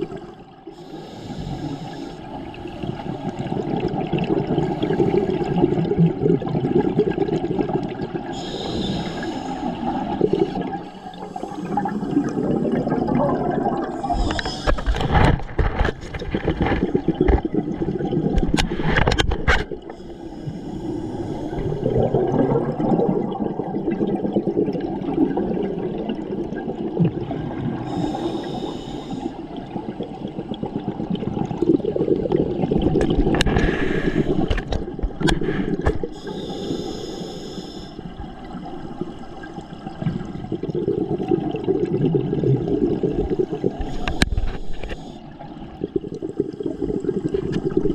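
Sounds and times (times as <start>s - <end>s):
bubbling exhaled air underwater: 0.0s - 47.9s
hiss of inhaled breath: 0.7s - 2.3s, 8.3s - 12.5s, 14.0s - 14.9s, 19.9s - 21.8s, 27.9s - 29.4s, 33.6s - 34.6s, 35.4s - 38.0s, 43.5s - 45.2s.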